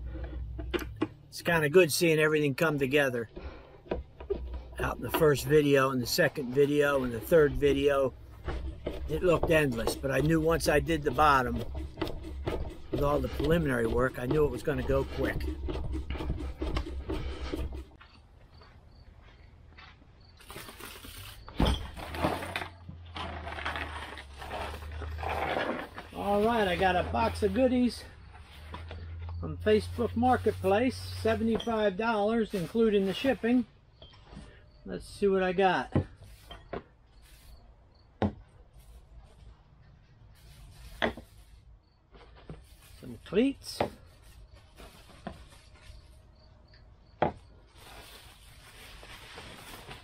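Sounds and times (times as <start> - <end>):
metal cleats knocking on wooden deck: 8.4 - 17.9
faint handling rustles: 38.7 - 46.3, 47.7 - 50.0.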